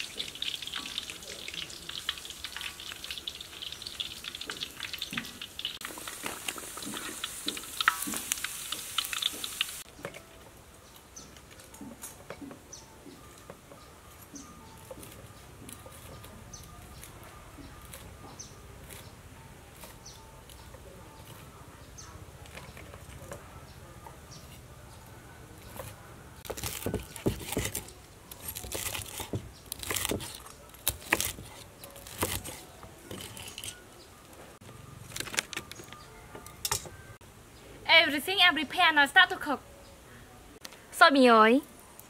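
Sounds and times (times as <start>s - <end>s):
cleaver crunching through crisp pork: 14.4s - 33.8s.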